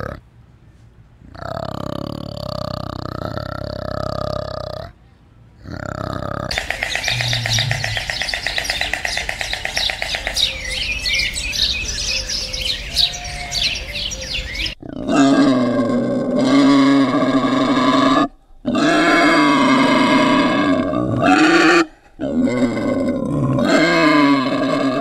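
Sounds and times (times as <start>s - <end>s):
animal long calls: 5.6s - 25.0s
birds chirping and trilling: 6.5s - 14.8s.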